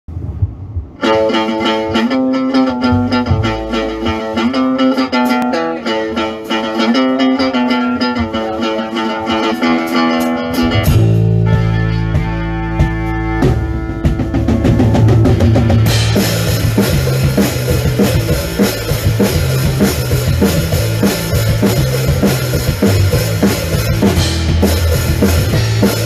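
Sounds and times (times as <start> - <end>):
electric guitar riff: 0.9 - 26.0
band hit with bass note: 1.0 - 5.6, 9.9 - 26.0.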